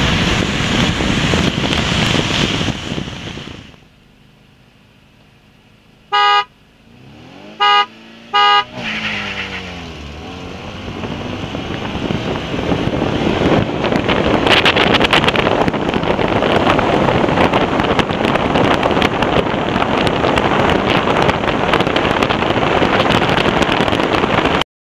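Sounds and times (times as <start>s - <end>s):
car engines accelerating hard: 0.0s - 3.9s, 4.9s - 24.6s
rush of wind: 0.0s - 4.0s, 6.8s - 24.6s
short beeps: 6.1s - 6.5s, 7.6s - 8.7s.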